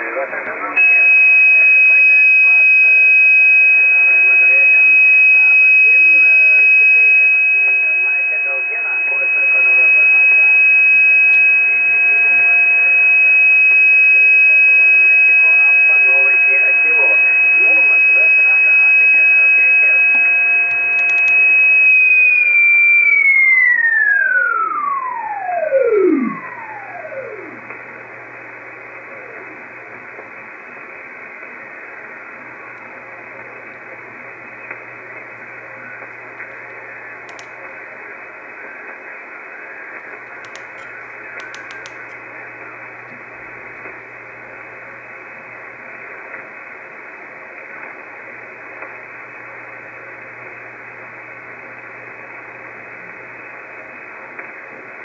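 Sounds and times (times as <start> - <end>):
radio band hiss: 0.0 - 55.0
radio carrier whistles: 0.8 - 27.7
short clicks: 37.2 - 37.6, 40.4 - 42.2.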